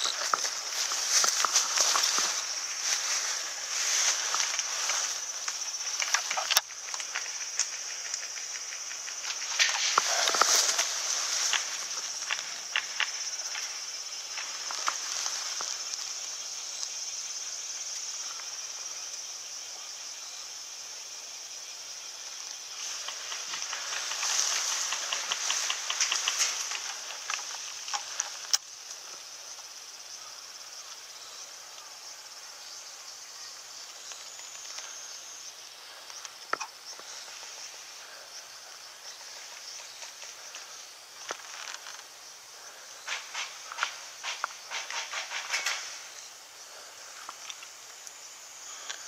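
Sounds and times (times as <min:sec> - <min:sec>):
rustles in grass: 0:00.0 - 0:18.6, 0:22.3 - 0:33.0, 0:33.6 - 0:49.0
insects buzzing: 0:00.0 - 0:49.0
sharp clicks: 0:23.0 - 0:28.6.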